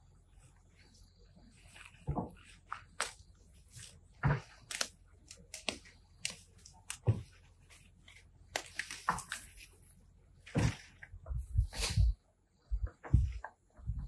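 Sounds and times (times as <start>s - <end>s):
hand tool chopping soil: 3.8s - 7.4s.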